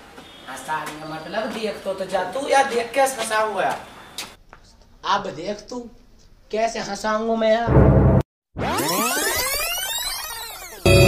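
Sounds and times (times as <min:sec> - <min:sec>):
synthesized tones gliding upward: 0:08.6 - 0:11.0.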